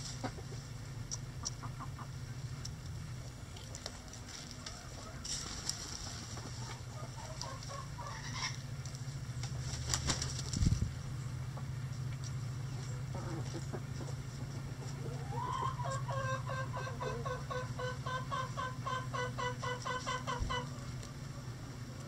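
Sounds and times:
steady low hum: 0.0 - 22.0
chicken clucking call: 1.4 - 2.2, 4.5 - 8.6, 12.9 - 22.0.

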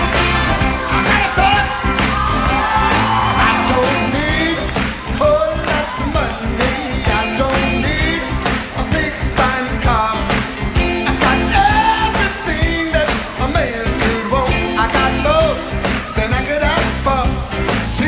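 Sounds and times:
drums: 0.0 - 18.0
electric guitar: 0.0 - 18.0
man singing: 0.8 - 1.9, 2.8 - 18.0.

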